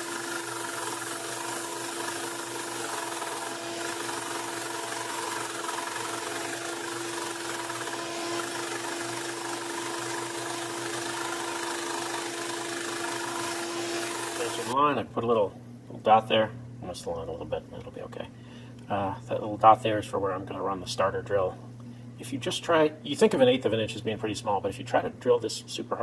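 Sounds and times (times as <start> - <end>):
belt sander sanding wood: 0.0 - 14.8.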